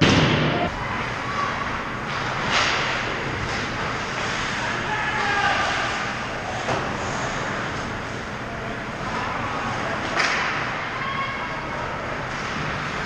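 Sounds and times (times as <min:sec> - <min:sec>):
arena noise: 0:00.0 - 0:13.0.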